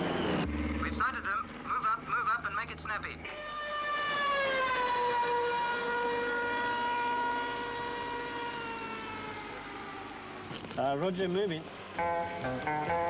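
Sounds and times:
police siren wailing: 0:03.1 - 0:10.5.

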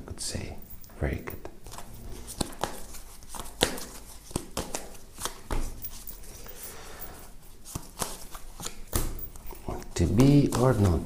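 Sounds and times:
cards shuffling: 0:01.4 - 0:06.7, 0:07.4 - 0:11.0.

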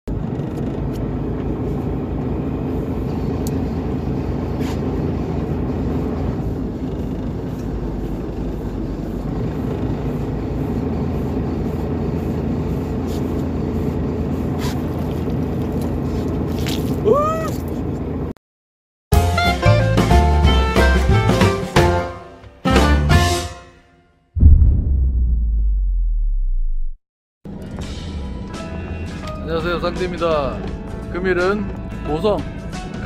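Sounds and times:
boat engine droning: 0:00.1 - 0:18.3.

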